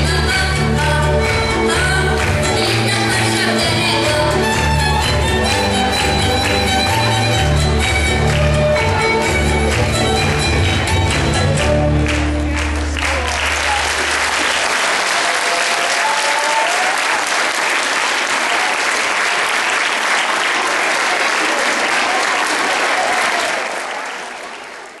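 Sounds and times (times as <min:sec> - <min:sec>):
dance music: 0:00.0 - 0:13.8
audience applauding: 0:05.0 - 0:25.0.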